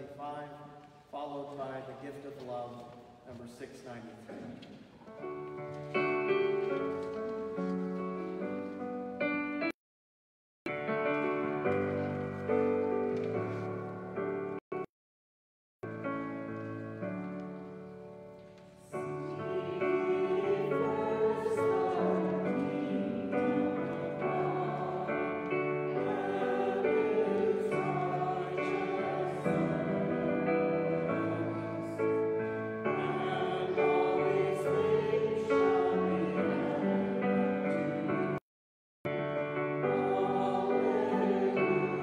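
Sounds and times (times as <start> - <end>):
voices singing a hymn: 18.8 - 38.4, 39.4 - 42.0.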